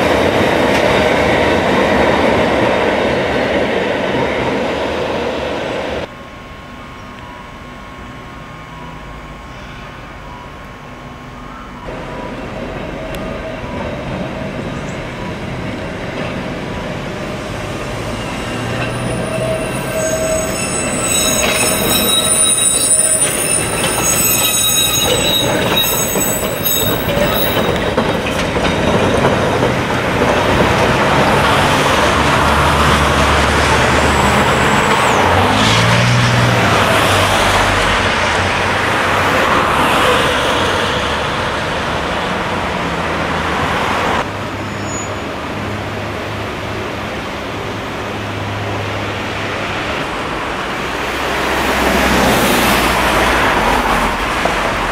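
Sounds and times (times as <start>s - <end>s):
road traffic: 0.0s - 54.9s
tram rumbling past: 0.0s - 54.9s
tram wheels squealing: 7.2s - 45.8s.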